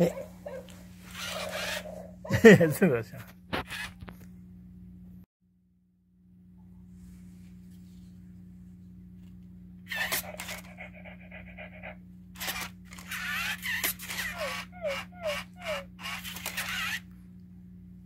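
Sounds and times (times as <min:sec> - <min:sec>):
electronic dog sound effects: 0:09.9 - 0:17.0.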